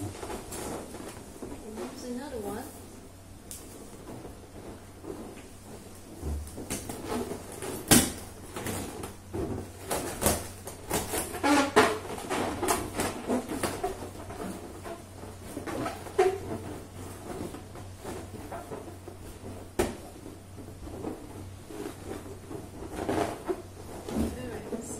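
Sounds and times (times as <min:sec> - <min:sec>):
balloons squeaking and rubbing: 0:00.0 - 0:02.6, 0:03.7 - 0:24.9.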